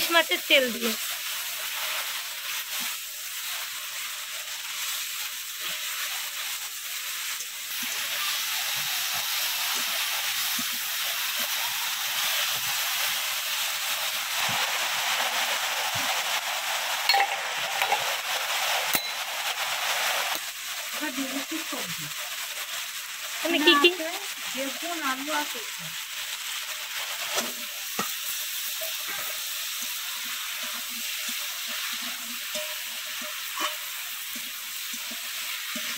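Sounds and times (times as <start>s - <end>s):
vegetables sizzling in a pan: 0.0s - 35.9s.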